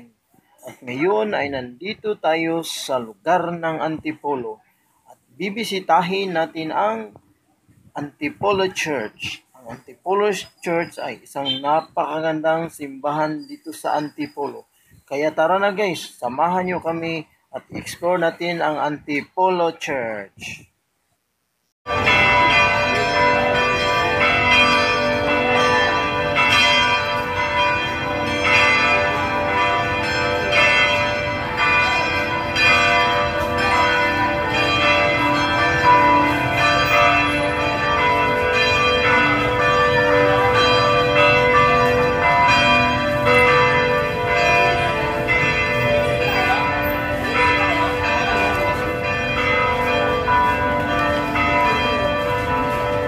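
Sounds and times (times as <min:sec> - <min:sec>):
bells ringing: 0:09.8 - 0:12.4, 0:21.9 - 0:53.0.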